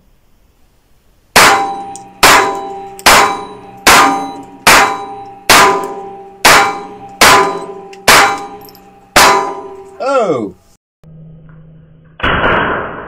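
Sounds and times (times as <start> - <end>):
rifle shots: 1.4 - 9.8, 12.2 - 13.0
short metallic ring: 1.4 - 10.0.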